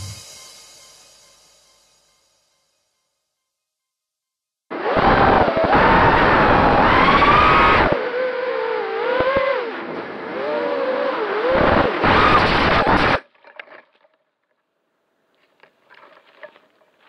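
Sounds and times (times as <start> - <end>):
drone motors whining: 4.7 - 13.2.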